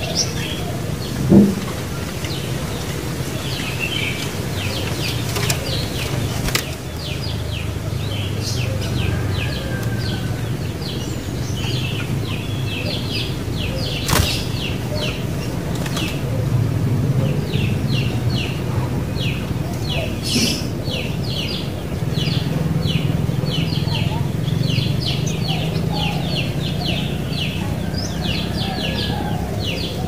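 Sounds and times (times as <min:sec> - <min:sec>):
birds chirping: 0:00.0 - 0:30.0
sharp clicks: 0:04.8 - 0:07.1, 0:14.0 - 0:14.8.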